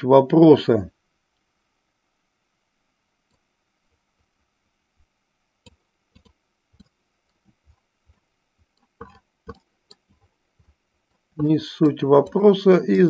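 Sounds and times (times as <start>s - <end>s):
computer mouse clicking: 5.6s - 12.4s.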